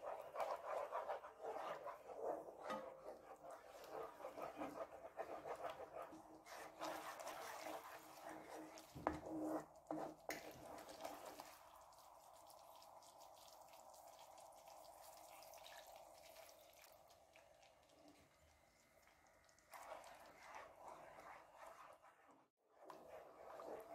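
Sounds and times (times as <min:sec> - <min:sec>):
spatula scraping sauce in pan: 0:00.0 - 0:11.6, 0:19.7 - 0:23.9.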